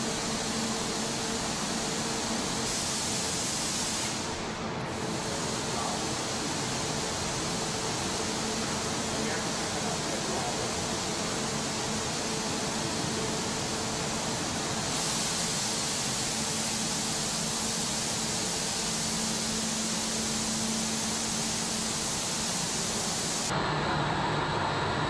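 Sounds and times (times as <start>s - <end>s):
hissing factory machinery: 0.0s - 25.0s.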